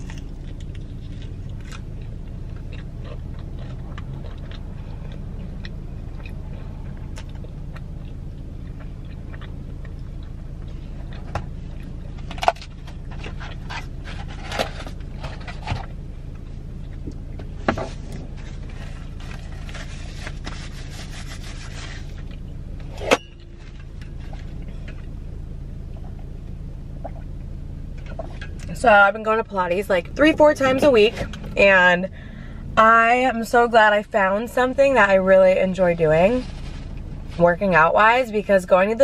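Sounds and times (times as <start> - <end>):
chewing and mouth sounds: 0.0 - 14.0
car cabin hum: 0.0 - 39.0
food and napkin rustles: 17.9 - 22.4, 36.2 - 37.4.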